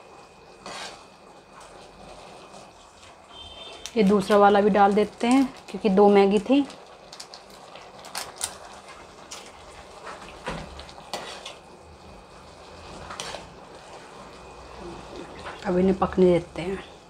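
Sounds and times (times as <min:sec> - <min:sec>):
metal spatula scraping a metal pan: 0:00.6 - 0:01.1, 0:11.0 - 0:11.6, 0:13.0 - 0:13.6.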